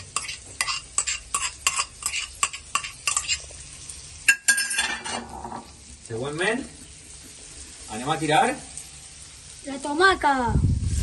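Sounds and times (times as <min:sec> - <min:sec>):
spatula scraping a pan: 0:00.0 - 0:03.8
frying sizzle: 0:00.0 - 0:11.0.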